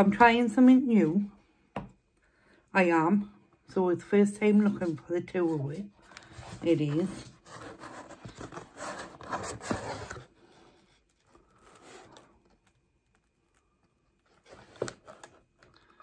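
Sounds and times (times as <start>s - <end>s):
cardboard box scraping and rustling: 6.3s - 12.3s.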